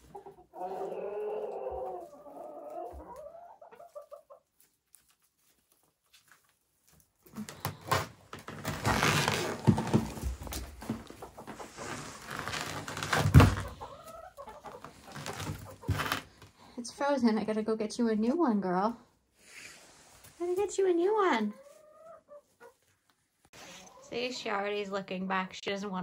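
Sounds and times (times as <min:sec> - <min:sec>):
chickens clucking: 0:00.0 - 0:07.4, 0:10.0 - 0:12.3, 0:13.3 - 0:16.1, 0:20.6 - 0:24.5
rustling and handling noise: 0:04.4 - 0:13.9, 0:14.6 - 0:16.6.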